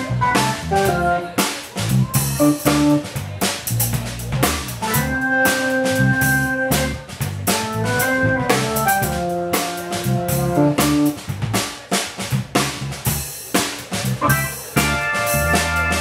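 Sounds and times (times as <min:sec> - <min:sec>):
electric organ chords: 0:00.0 - 0:01.3, 0:04.8 - 0:11.2, 0:14.2 - 0:16.0
drum kit: 0:00.0 - 0:16.0
electric bass: 0:00.0 - 0:16.0.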